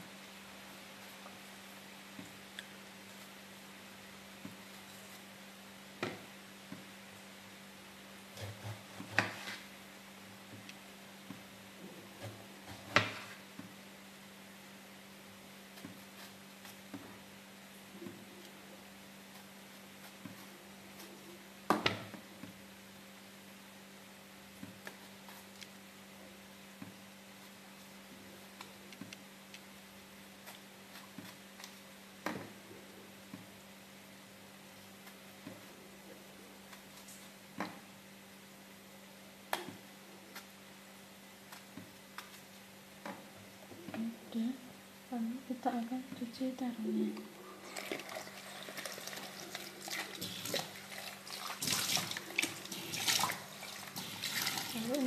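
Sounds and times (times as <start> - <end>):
tap water running into a bowl: 47.7 - 54.9
water splashing: 47.7 - 55.0
hands swishing vegetables in water: 47.8 - 55.0.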